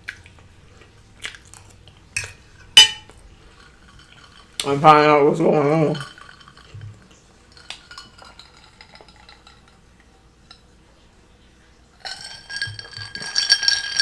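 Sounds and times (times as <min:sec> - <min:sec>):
drinking glass clinking: 0:02.2 - 0:09.8, 0:12.0 - 0:14.0.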